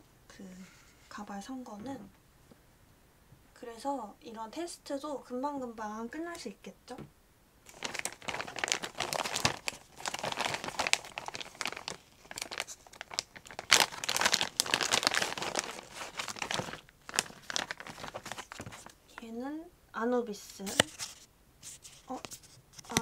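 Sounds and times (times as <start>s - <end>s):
plastic packaging crinkling: 7.7s - 19.2s, 20.5s - 23.0s.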